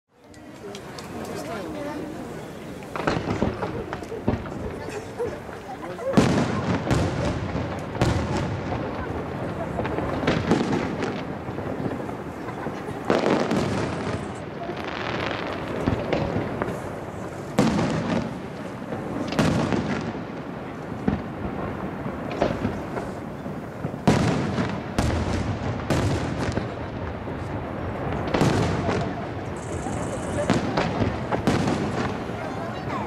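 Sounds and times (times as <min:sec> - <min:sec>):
rolling echo: 0:00.3 - 0:33.0
firework shells booming: 0:02.8 - 0:33.0.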